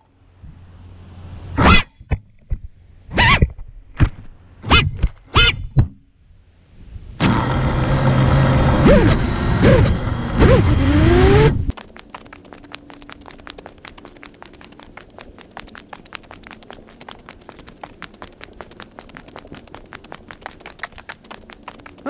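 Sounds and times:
faint ticking: 11.7s - 22.0s.

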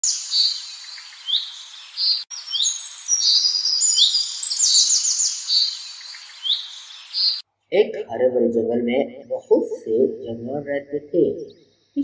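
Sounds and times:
small birds chirping and trilling: 0.0s - 7.4s.

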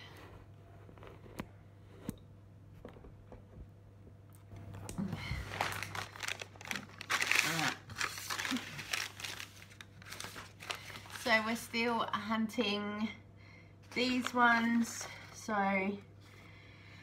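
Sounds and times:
plastic packs crinkling: 5.2s - 11.6s.

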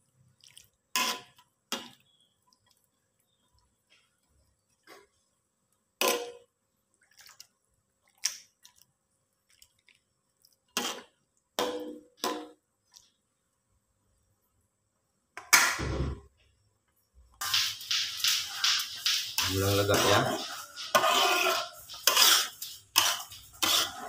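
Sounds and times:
metal spatula scraping a wok: 1.0s - 1.4s, 10.8s - 11.1s, 17.4s - 24.0s.

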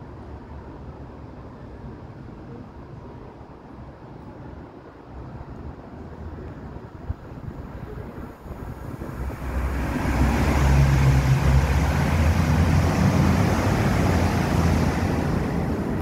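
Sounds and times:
road noise: 4.8s - 16.0s
vehicle engine hum: 8.9s - 16.0s.

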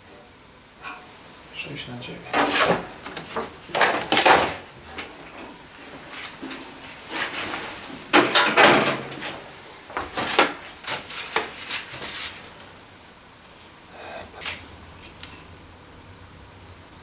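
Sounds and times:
sharp knocks and clatters: 2.3s - 11.5s.

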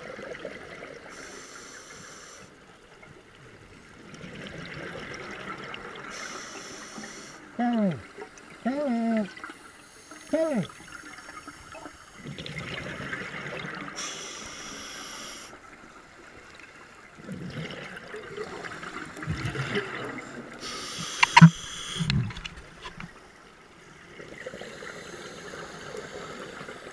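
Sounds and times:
regulator inhalation hiss: 1.1s - 2.5s, 6.1s - 7.4s, 14.0s - 15.6s, 20.6s - 22.1s
exhaled bubbles gurgling underwater: 3.4s - 6.9s, 8.0s - 14.1s, 15.6s - 23.2s
sharp click: 21.1s - 23.1s.

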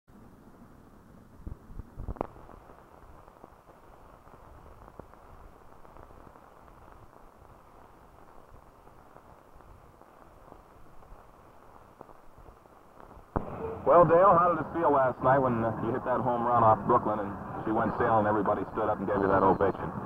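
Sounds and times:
film soundtrack hiss and crackle: 0.1s - 20.0s
sharp pops: 1.4s - 13.7s
faint clicks: 1.5s - 13.5s.

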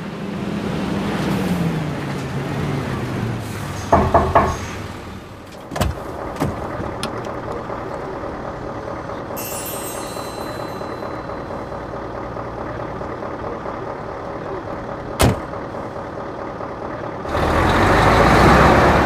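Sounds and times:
clatter of knocks: 3.9s - 4.7s.

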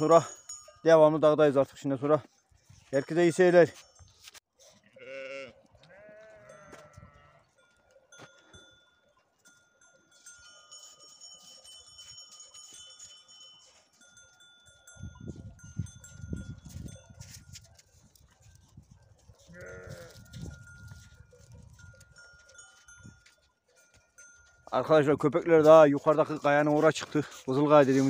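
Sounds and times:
sheep bells clinking: 0.0s - 28.0s
sheep bleating: 4.8s - 7.5s, 19.5s - 20.3s.

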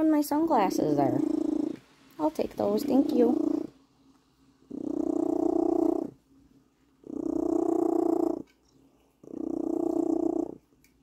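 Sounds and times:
cat purring: 0.0s - 3.8s, 4.4s - 11.0s.

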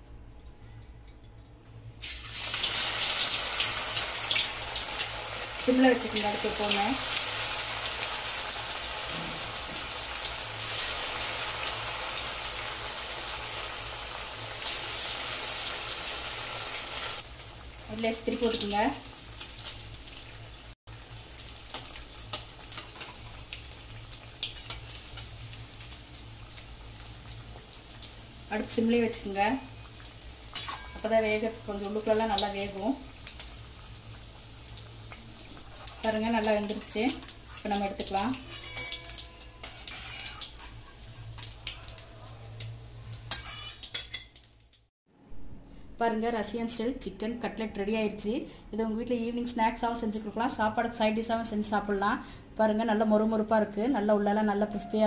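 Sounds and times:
hot oil sizzling and crackling: 2.0s - 44.9s
metal spatula scraping a pan: 30.5s - 31.0s, 35.6s - 36.8s, 37.4s - 41.5s, 43.2s - 44.3s.

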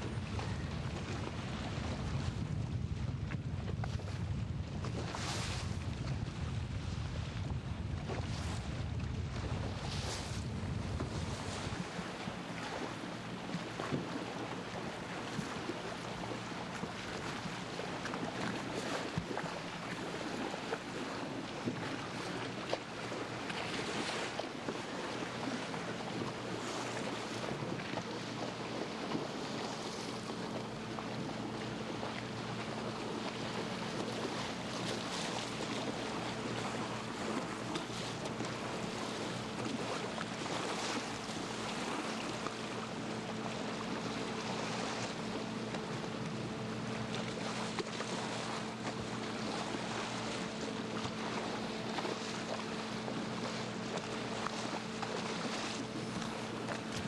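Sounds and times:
wind on microphone: 0.0s - 12.9s
boat engine humming: 0.0s - 57.0s
water noise: 0.0s - 57.0s.

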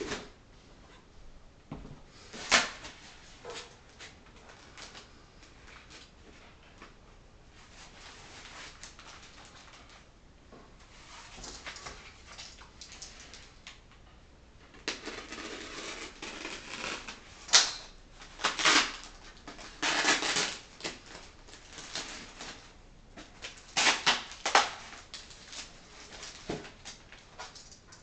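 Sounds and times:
plastic bags rustling: 7.5s - 10.1s, 14.9s - 28.0s.

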